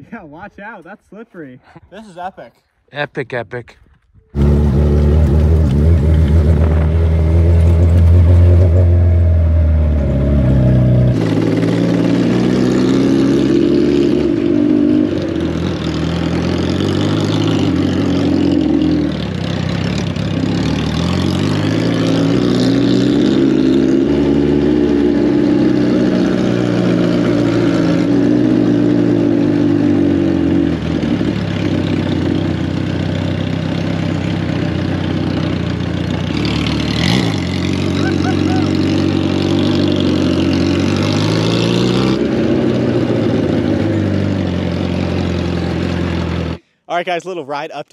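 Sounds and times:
motorcycle engine revving: 0:04.3 - 0:46.6.

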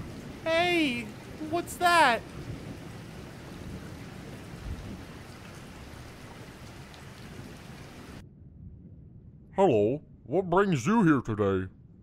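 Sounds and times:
steady rain falling: 0:00.0 - 0:08.2
low rumble: 0:08.2 - 0:12.0.

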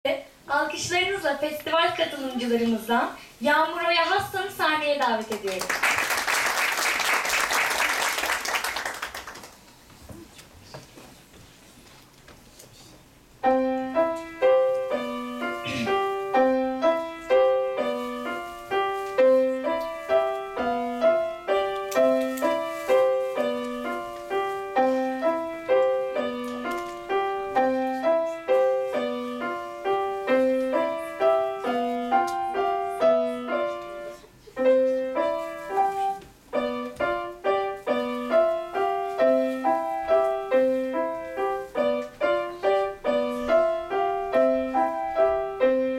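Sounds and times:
grand piano playing: 0:13.3 - 0:45.9.

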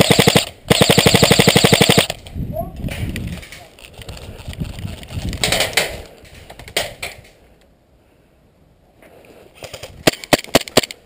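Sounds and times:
rustling of gear and brush: 0:02.8 - 0:06.4.

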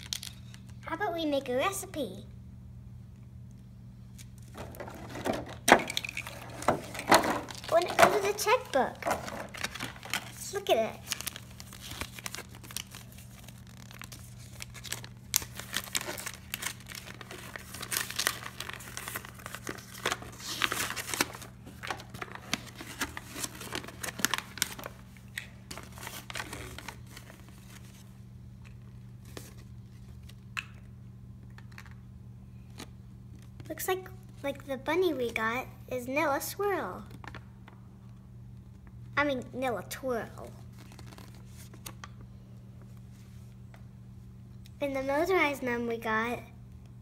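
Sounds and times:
paper leaflet crinkling and rustling: 0:04.2 - 0:30.4, 0:40.6 - 0:42.2.

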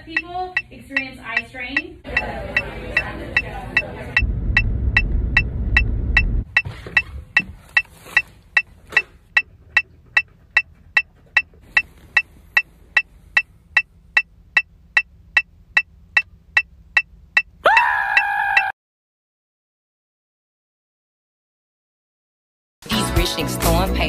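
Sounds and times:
low rumble: 0:02.1 - 0:07.8.

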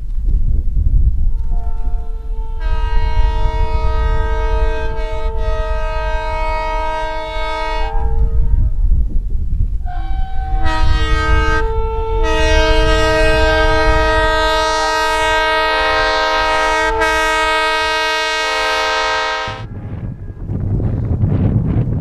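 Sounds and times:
train rumbling through snow: 0:00.0 - 0:22.0
locomotive air horn chord: 0:01.4 - 0:08.8, 0:09.8 - 0:19.7.

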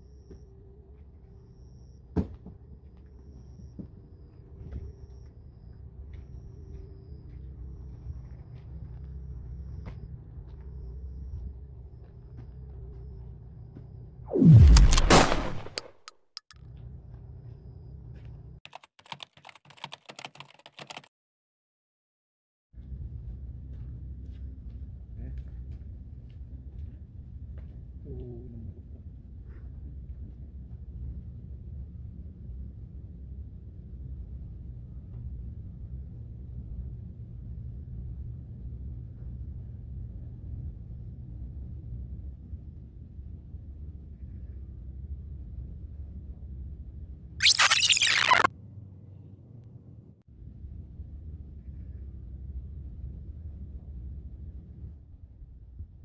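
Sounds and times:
whoosh falling in pitch: 0:14.3 - 0:16.0
sharp clicks: 0:14.3 - 0:16.6, 0:47.4 - 0:48.5
keyboard typing clicks: 0:18.7 - 0:21.1
low outdoor rumble: 0:22.8 - 0:47.4, 0:48.6 - 0:56.0.

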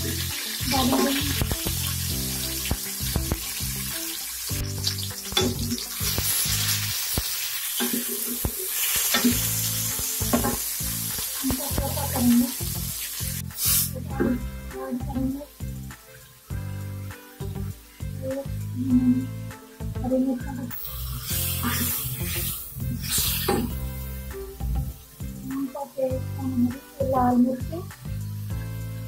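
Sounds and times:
onion and garlic sizzling in oil: 0:00.0 - 0:29.0
wooden spoon knocking and scraping pot: 0:05.4 - 0:05.9, 0:10.2 - 0:10.8.

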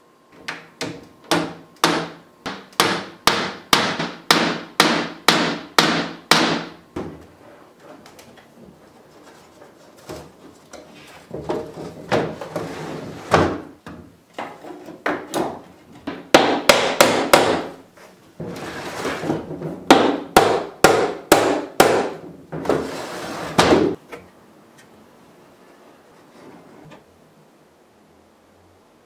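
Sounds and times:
hammer striking nails into wood: 0:00.8 - 0:06.8, 0:16.1 - 0:17.8, 0:19.9 - 0:22.2.

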